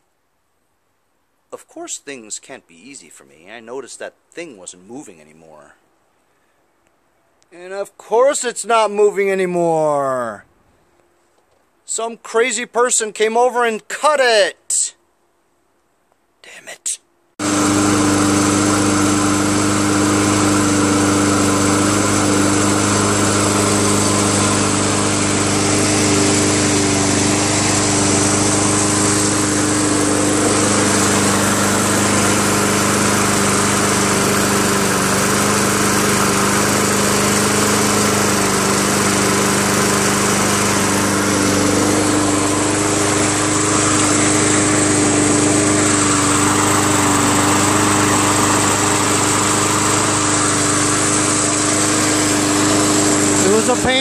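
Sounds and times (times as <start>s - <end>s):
lawn mower engine running: 17.4s - 54.0s.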